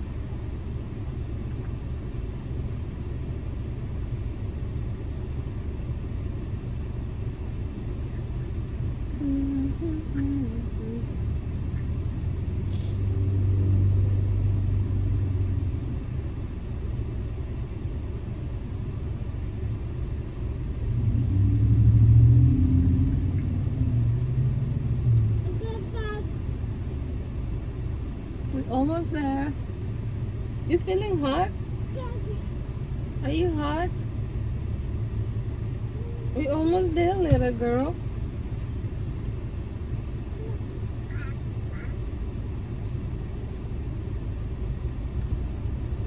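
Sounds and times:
low rumble inside car: 0.0s - 46.0s
passing traffic: 0.0s - 46.0s.

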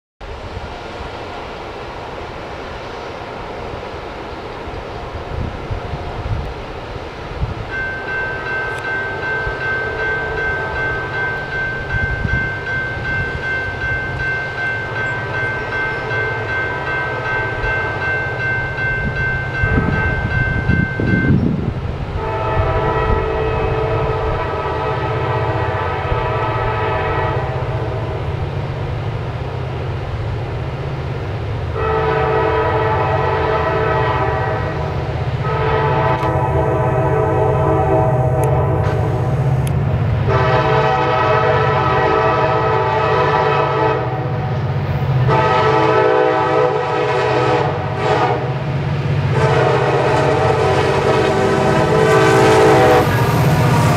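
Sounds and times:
low train rumble: 0.2s - 53.9s
locomotive air horn blasts: 22.2s - 28.2s, 31.8s - 39.2s, 40.2s - 44.6s, 45.2s - 48.7s, 49.3s - 53.9s.

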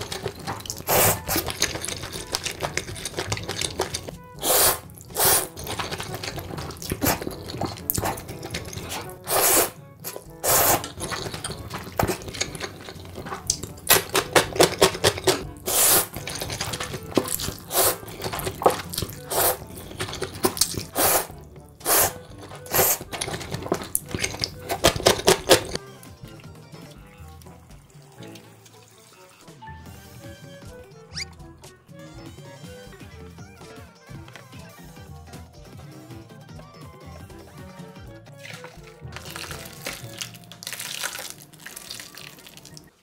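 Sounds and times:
slurping and chewing: 0.0s - 25.8s, 38.3s - 43.0s.

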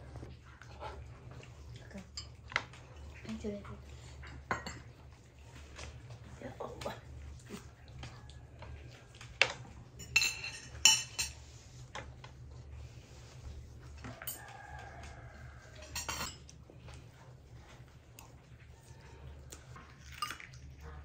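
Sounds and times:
dishes clinking: 4.2s - 4.9s, 9.4s - 11.5s, 14.1s - 14.5s, 15.8s - 16.5s.

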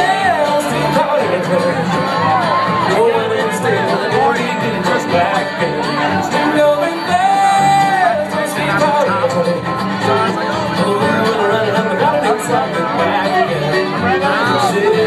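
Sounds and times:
bluegrass string band: 0.0s - 15.0s
person singing: 0.0s - 15.0s.

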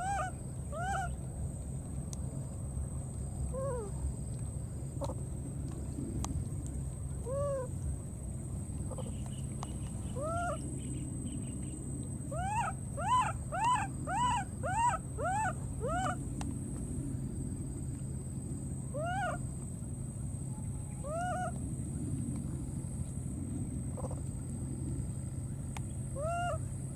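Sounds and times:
baby monkey crying: 0.0s - 1.2s, 10.2s - 10.6s, 12.3s - 16.2s, 19.0s - 19.4s, 21.0s - 21.6s.

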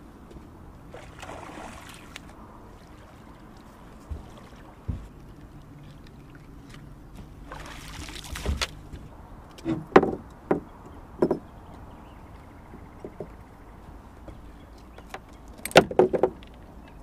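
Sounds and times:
water splashing: 0.9s - 9.1s
sharp knocks on metal boat: 9.6s - 11.5s, 13.0s - 13.4s, 15.7s - 16.4s.

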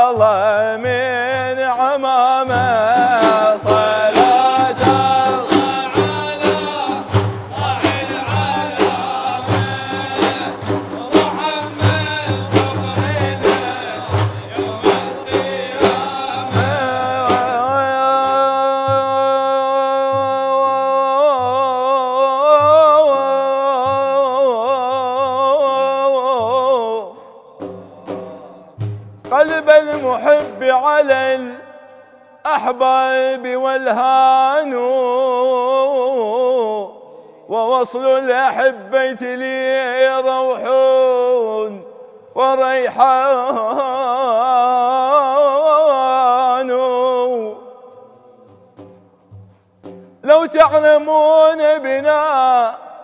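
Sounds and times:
frame drums beating: 0.0s - 31.4s, 46.1s - 52.4s.

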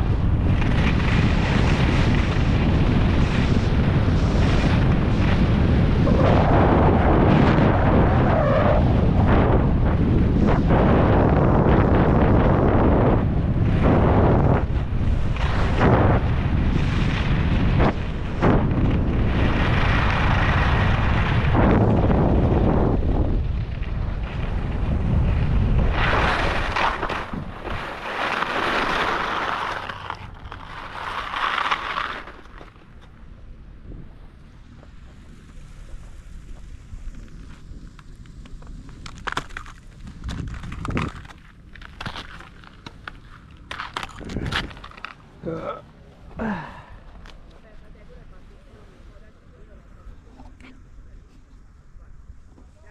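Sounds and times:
skis carving over packed snow: 0.0s - 33.2s, 34.2s - 45.8s
wind buffeting microphone: 0.0s - 52.9s.

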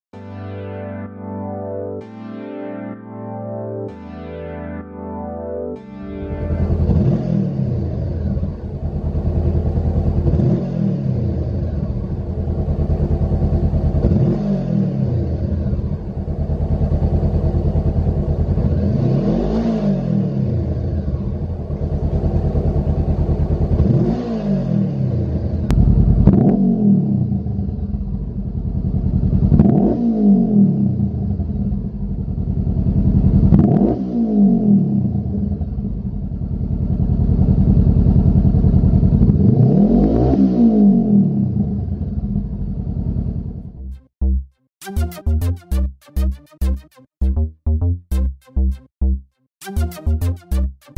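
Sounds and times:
motorcycle engine idling and revving: 6.4s - 44.4s.

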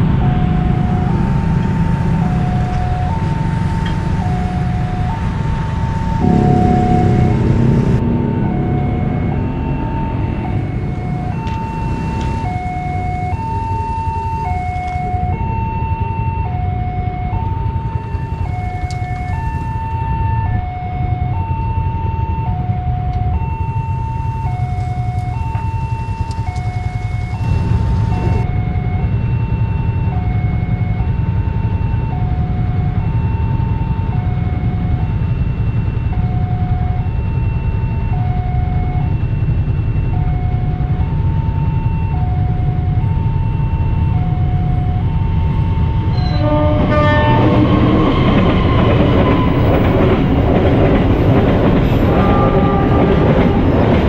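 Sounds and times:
low rumble: 0.0s - 13.5s
level crossing two-tone alarm: 0.0s - 54.0s.

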